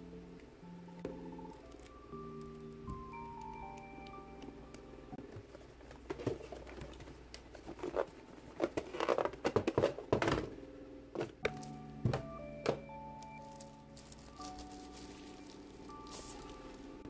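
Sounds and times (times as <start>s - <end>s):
cardboard rustling and scraping: 5.2s - 10.5s.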